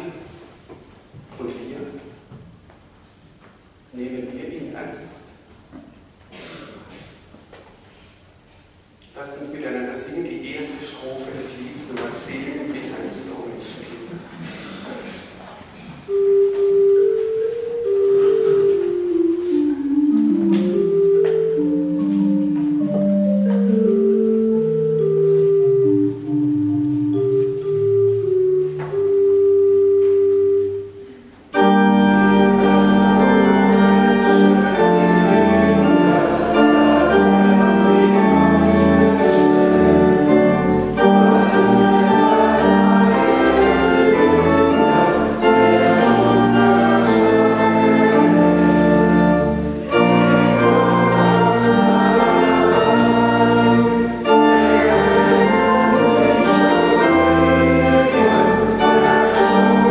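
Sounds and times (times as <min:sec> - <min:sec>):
church organ playing chords: 0:16.1 - 0:59.9.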